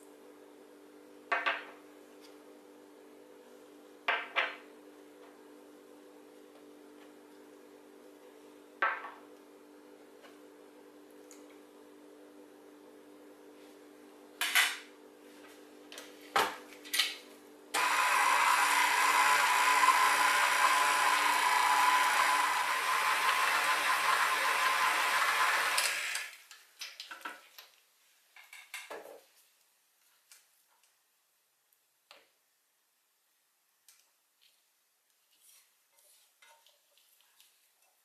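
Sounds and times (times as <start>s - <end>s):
stand mixer whining: 17.8s - 26.4s.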